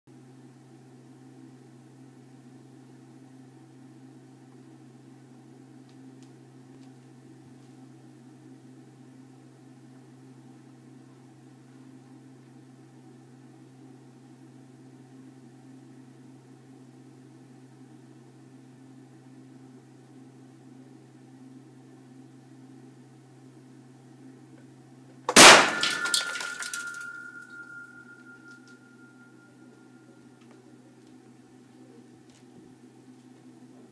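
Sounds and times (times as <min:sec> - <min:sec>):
steady low hum: 0:00.1 - 0:33.9
clattering: 0:25.3 - 0:28.7
high ringing tone: 0:25.4 - 0:30.8.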